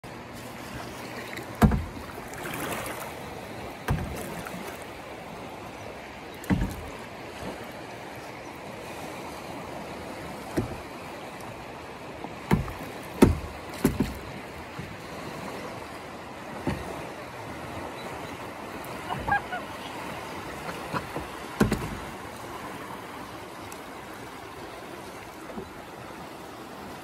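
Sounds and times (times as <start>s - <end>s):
river current rushing: 0.0s - 27.0s
knocks on plastic kayak: 1.6s - 2.0s, 3.8s - 4.3s, 6.4s - 6.9s, 12.4s - 14.2s, 21.2s - 22.1s.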